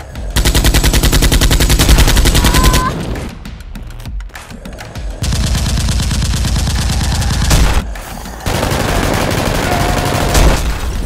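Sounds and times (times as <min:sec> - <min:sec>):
machine-gun fire: 0:00.4 - 0:02.9, 0:05.2 - 0:11.0.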